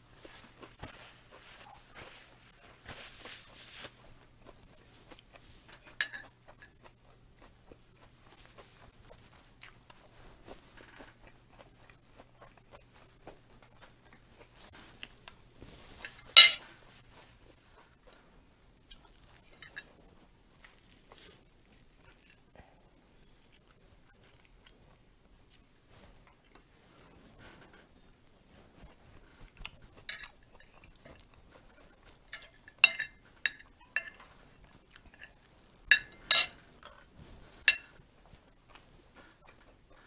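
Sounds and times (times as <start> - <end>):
cutlery clinking on china plate: 5.9 - 6.4, 16.0 - 16.7, 19.6 - 19.9, 30.0 - 31.2, 32.3 - 34.4, 35.1 - 36.6, 37.6 - 38.0.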